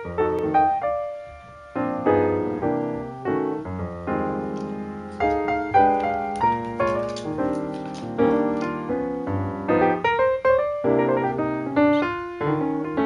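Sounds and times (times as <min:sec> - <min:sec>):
piano chords: 0:00.0 - 0:13.0.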